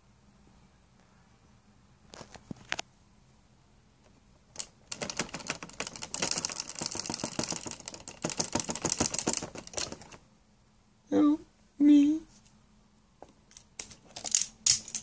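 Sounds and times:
fast sharp clicks and clatter: 4.6 - 10.2.

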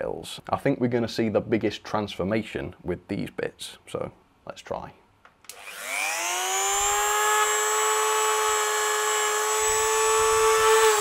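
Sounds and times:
rotary tool high whine: 5.5 - 11.0.

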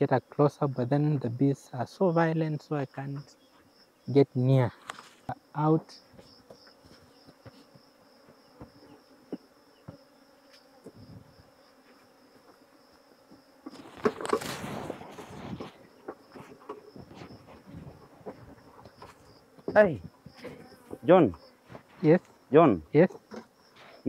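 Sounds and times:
bees buzzing: 2.0 - 24.0
loud rustle: 13.7 - 15.8.

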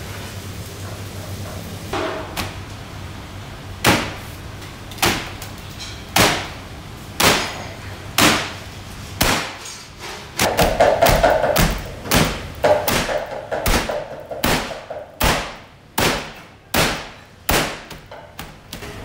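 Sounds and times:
dough slapping on metal table: 3.8 - 4.3, 4.9 - 6.6, 7.2 - 19.0.

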